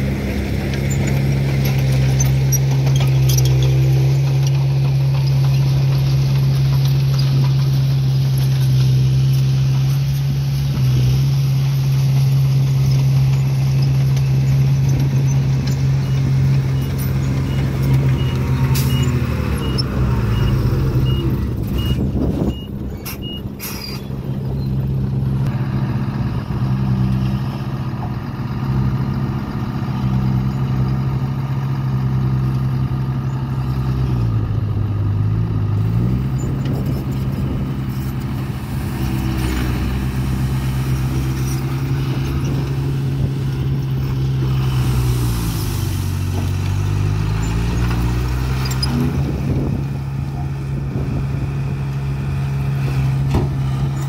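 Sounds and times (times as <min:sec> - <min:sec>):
diesel engine running under load: 0:00.0 - 0:54.0
reversing beeper: 0:16.0 - 0:24.0.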